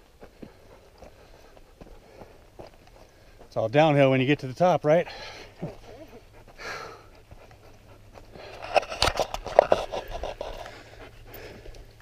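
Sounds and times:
panting breaths: 0:00.0 - 0:12.0
handling rustling and clicks: 0:08.5 - 0:10.7.

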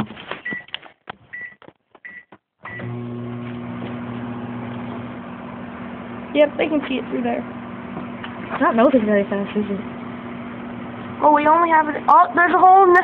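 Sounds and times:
microwave keypad beeping: 0:01.4 - 0:03.0
microwave humming: 0:02.6 - 0:13.0.

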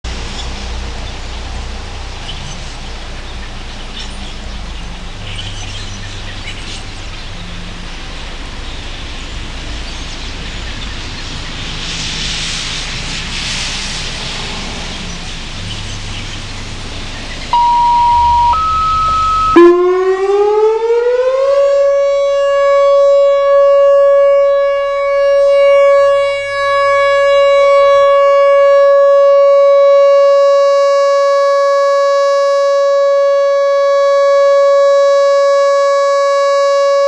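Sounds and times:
low steady hum: 0:17.5 - 0:30.4
loud steady high tone: 0:17.5 - 0:37.0.

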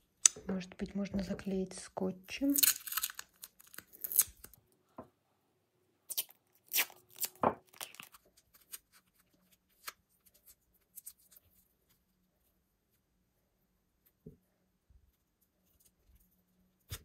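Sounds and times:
adhesive tape ripping: 0:02.5 - 0:04.6, 0:06.1 - 0:08.9.

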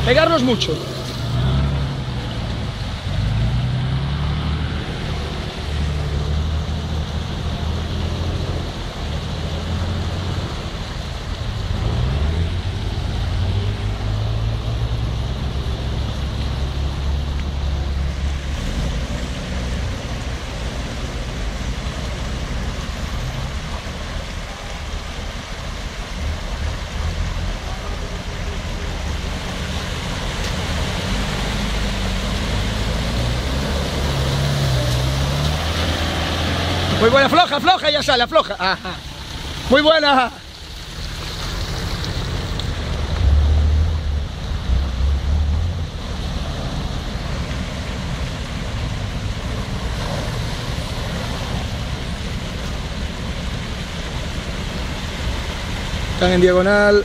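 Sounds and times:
engine revving: 0:00.0 - 0:10.8, 0:11.6 - 0:17.2, 0:27.0 - 0:37.7
water rushing and splashing: 0:00.0 - 0:57.0.

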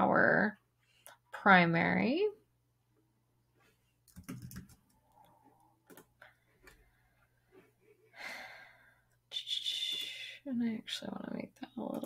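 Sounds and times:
keyboard typing: 0:04.0 - 0:05.2, 0:05.8 - 0:06.1.

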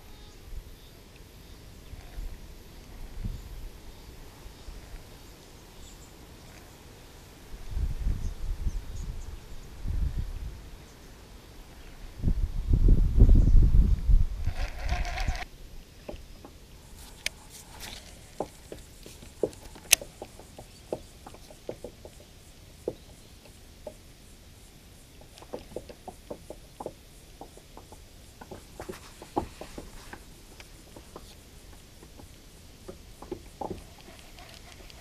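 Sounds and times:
fishing reel clicking: 0:14.5 - 0:15.4.

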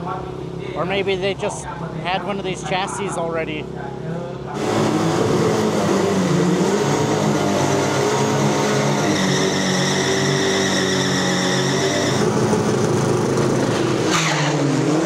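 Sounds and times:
engine revving high: 0:04.6 - 0:15.0.

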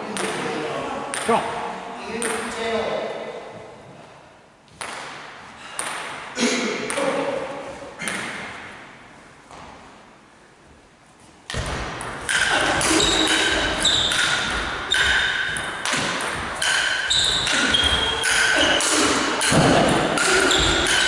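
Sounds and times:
table tennis ball pings: 0:12.0 - 0:21.0.

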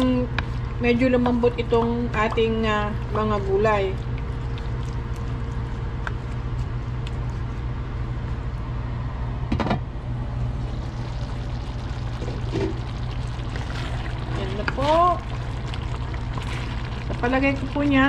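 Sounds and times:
steady low hum: 0:00.0 - 0:18.0
sauce bubbling in pan: 0:02.4 - 0:05.7, 0:10.4 - 0:18.0.

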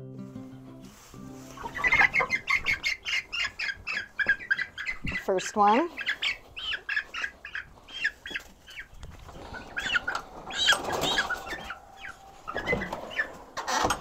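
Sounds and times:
chicks peeping and squawking: 0:00.9 - 0:14.0
wings flapping: 0:08.3 - 0:11.8.

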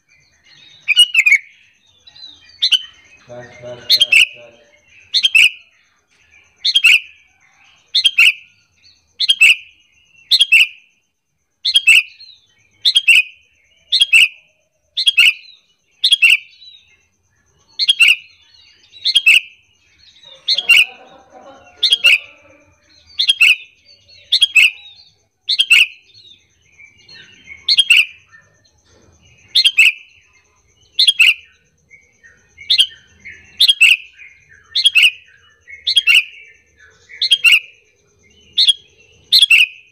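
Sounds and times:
bulbul short sharp calls: 0:02.6 - 0:05.7, 0:20.2 - 0:26.2, 0:38.6 - 0:39.9.

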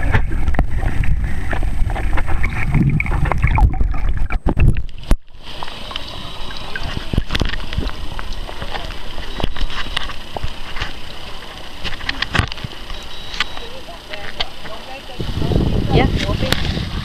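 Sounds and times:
water sloshing: 0:00.0 - 0:15.2
steady hiss: 0:04.8 - 0:17.0.

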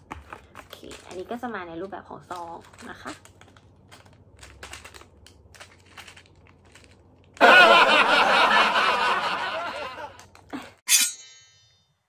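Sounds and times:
plastic sachet clicks and rustles: 0:00.0 - 0:07.4, 0:10.2 - 0:10.6
loud plastic crinkling: 0:00.1 - 0:07.4.

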